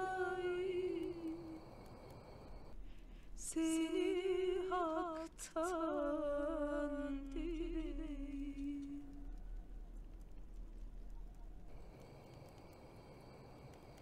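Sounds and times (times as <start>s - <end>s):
person humming a melody: 3.4s - 9.3s.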